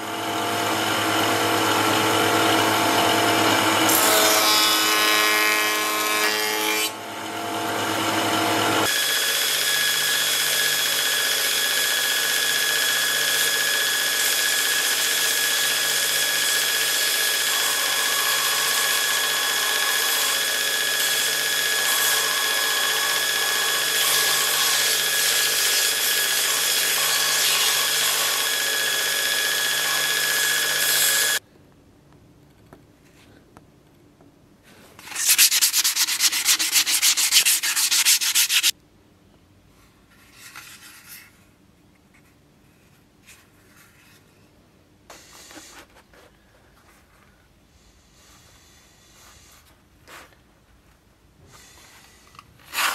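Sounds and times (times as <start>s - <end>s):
belt grinder sanding wood: 7.9s - 31.4s, 35.1s - 38.7s
rapid rasping strokes: 35.0s - 38.7s.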